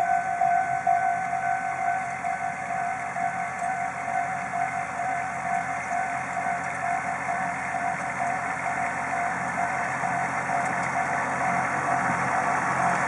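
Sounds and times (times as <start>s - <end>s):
tractor engine running with whine: 0.0s - 13.0s
rotary tiller in soil: 5.2s - 13.0s.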